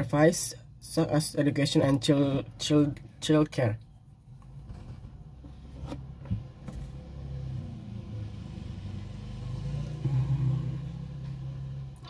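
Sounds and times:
vehicle engine rumble: 0:04.2 - 0:12.0.

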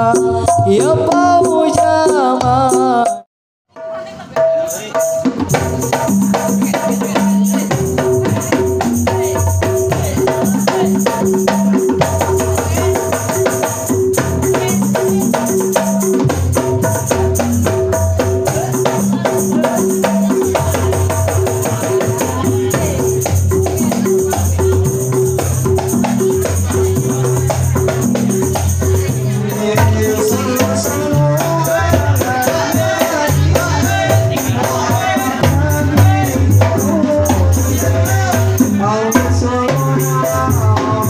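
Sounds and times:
frame drums and darbuka rhythm: 0:00.0 - 0:41.0.

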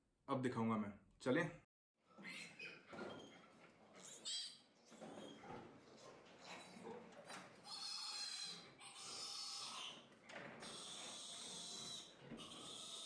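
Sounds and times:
piglet squealing: 0:02.2 - 0:02.9, 0:04.0 - 0:04.7, 0:07.6 - 0:13.0.

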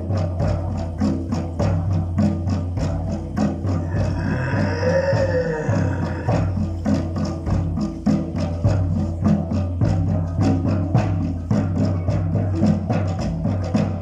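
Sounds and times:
hand drums beat: 0:00.0 - 0:14.0
woodblock strikes: 0:00.0 - 0:14.0.

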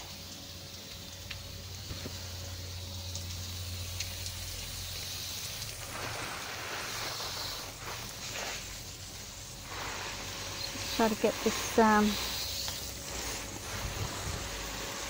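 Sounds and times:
garden hose spraying water: 0:00.0 - 0:15.0.

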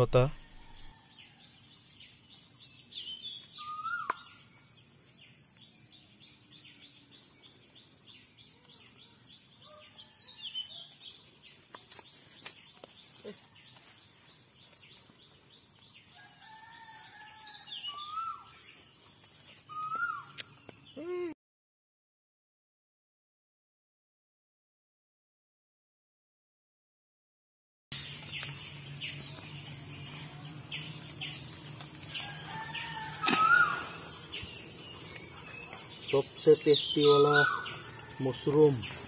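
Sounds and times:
birds chirping and whistling: 0:02.4 - 0:04.5, 0:17.8 - 0:18.7, 0:19.7 - 0:20.4, 0:32.1 - 0:39.0
high-pitched insect drone: 0:28.0 - 0:39.0.

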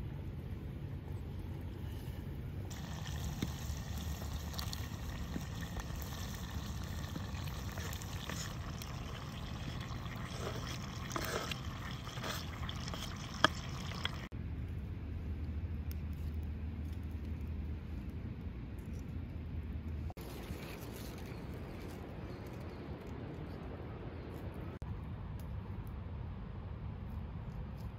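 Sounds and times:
low outdoor rumble: 0:00.0 - 0:27.9
ingredients pouring into pot: 0:02.7 - 0:14.3.

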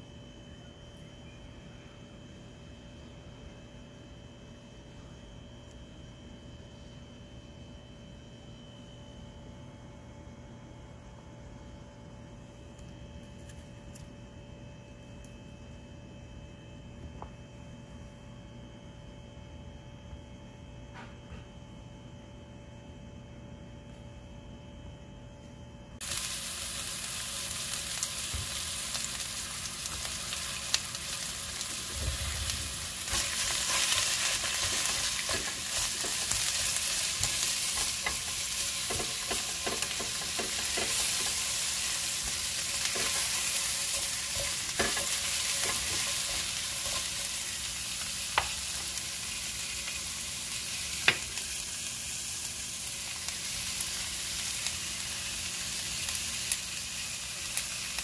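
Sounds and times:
vegetables sizzling in a pan: 0:26.0 - 0:58.0.

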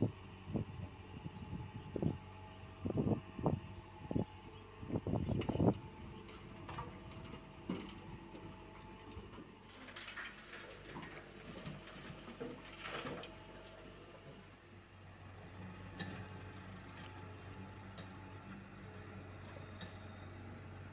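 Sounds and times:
excavator diesel engine running: 0:00.0 - 0:20.9
clunks: 0:05.2 - 0:14.5.

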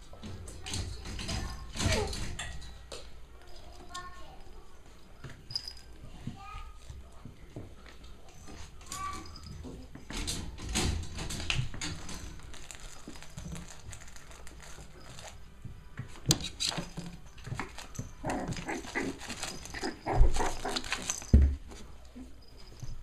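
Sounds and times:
puppies scuffling: 0:00.0 - 0:23.0
puppies yipping: 0:17.6 - 0:21.4.

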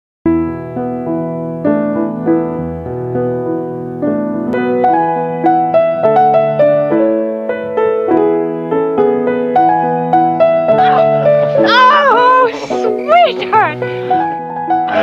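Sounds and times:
piano music: 0:00.3 - 0:15.0.

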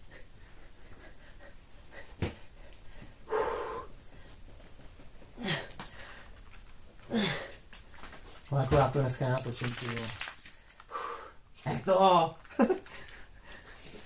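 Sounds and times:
breathy exhales: 0:03.3 - 0:04.0.

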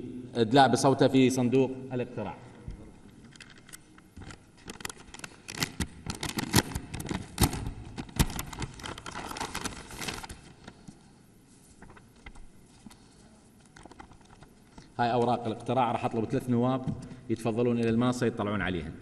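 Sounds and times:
papers rustling: 0:03.3 - 0:15.7.

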